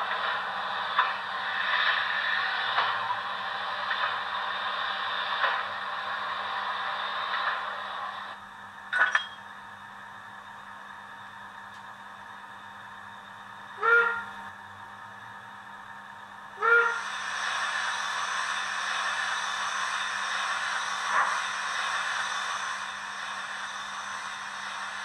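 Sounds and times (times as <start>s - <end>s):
steam hiss: 0.0s - 8.4s, 16.6s - 25.0s.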